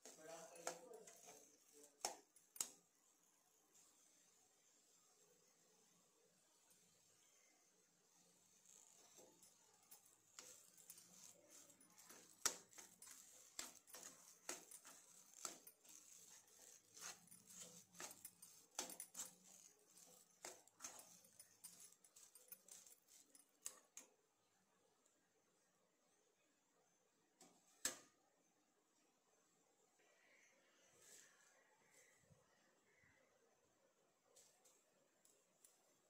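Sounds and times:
spoon scraping pan: 0:08.8 - 0:23.8.

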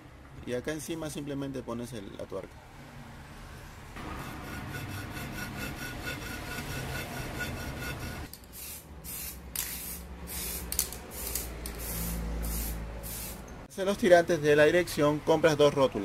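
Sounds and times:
rubbing scraping noise: 0:04.0 - 0:08.3
spray paint can hissing: 0:08.3 - 0:13.4.

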